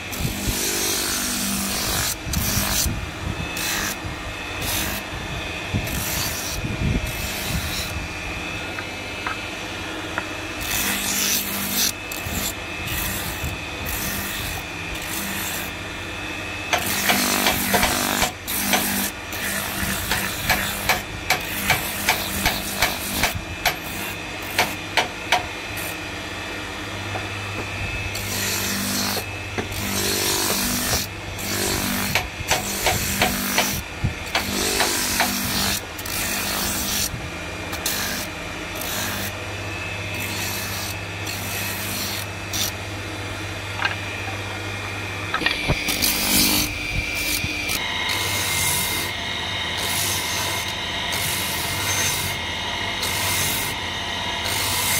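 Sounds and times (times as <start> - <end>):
electric motor hum: 0.0 - 54.9
wood grinding on sanding drum: 16.8 - 26.0.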